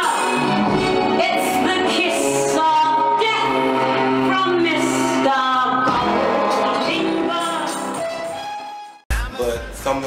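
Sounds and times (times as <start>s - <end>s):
pop song with sung vocals: 0.0s - 8.0s.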